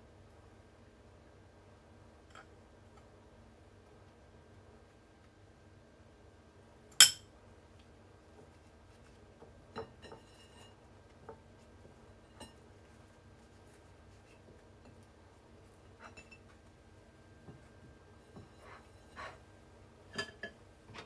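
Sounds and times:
kitchenware clinking: 16.0 - 16.5, 20.1 - 20.6.

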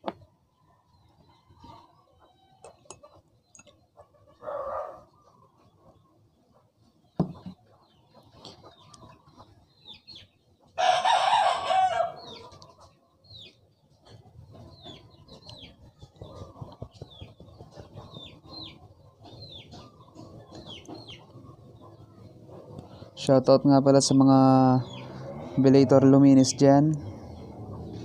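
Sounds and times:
small birds chirping: 0.0 - 28.0
rooster crowing: 10.8 - 12.4.

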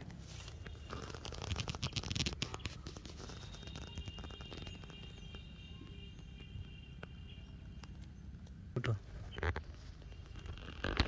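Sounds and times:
grass and reeds rustling: 0.0 - 5.6, 9.0 - 11.0.

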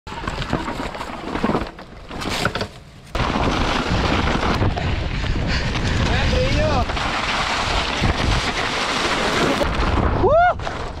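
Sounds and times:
wind buffeting microphone: 3.2 - 8.7.

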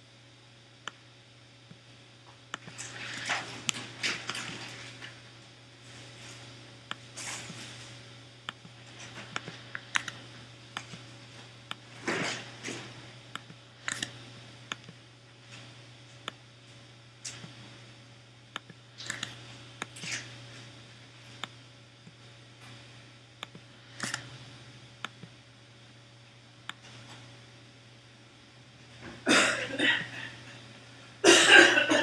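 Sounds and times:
low steady hum: 0.0 - 32.0
computer mouse and keyboard clicks: 8.5 - 10.2, 13.4 - 15.0, 18.6 - 20.2, 23.4 - 24.3.

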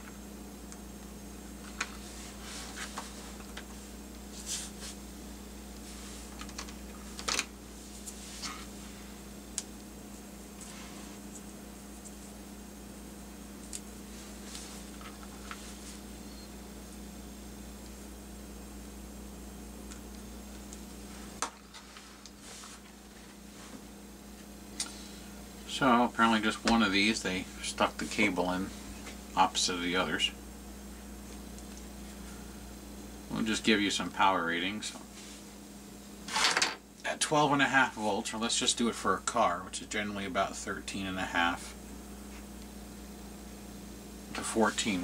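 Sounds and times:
steady low hum: 0.0 - 45.0
thin wires rustling: 1.6 - 5.0, 5.7 - 9.2.

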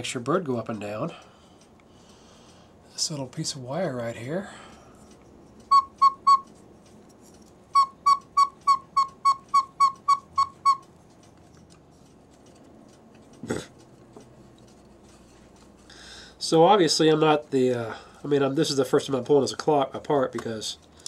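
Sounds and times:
whistle pipe toots: 5.7 - 6.5, 7.7 - 10.9.

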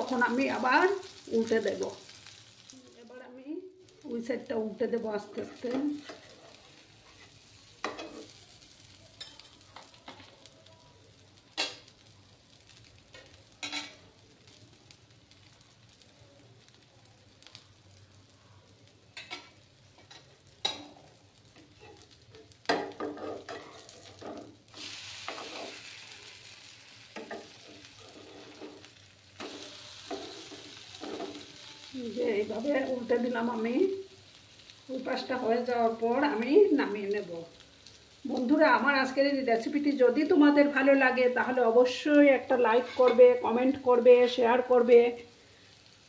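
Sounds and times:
potato pancakes sizzling in oil: 0.0 - 46.0
metal spatula scraping a pan: 5.3 - 8.4, 21.6 - 31.6, 42.7 - 43.4.

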